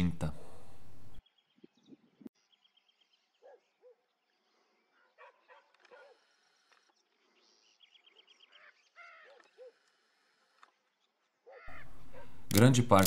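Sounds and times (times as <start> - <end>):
macaw squawks: 8.2 - 9.9, 11.4 - 12.5.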